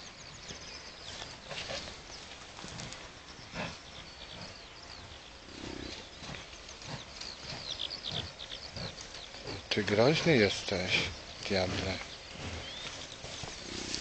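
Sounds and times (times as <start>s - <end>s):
small birds chirping: 0.0s - 14.0s
bison grunting: 2.7s - 4.7s, 5.4s - 14.0s.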